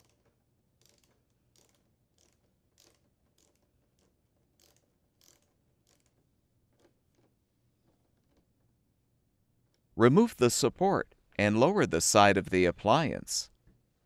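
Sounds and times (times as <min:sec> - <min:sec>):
hand ratchet clicking: 0:00.0 - 0:06.2.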